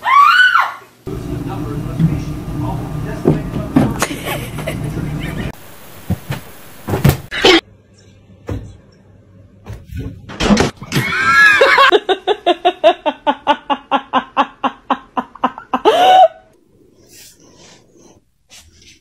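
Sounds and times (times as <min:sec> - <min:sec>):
person laughing hard: 0:04.0 - 0:05.6, 0:11.2 - 0:16.5
sharp knocks and thuds: 0:06.0 - 0:07.3.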